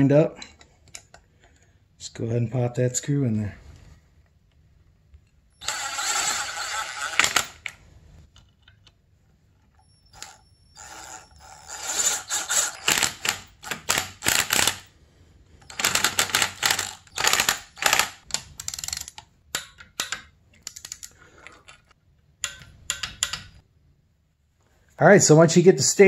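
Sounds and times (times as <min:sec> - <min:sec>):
hand ratchet clicking: 0:10.2 - 0:14.9, 0:15.6 - 0:21.2, 0:22.4 - 0:23.6.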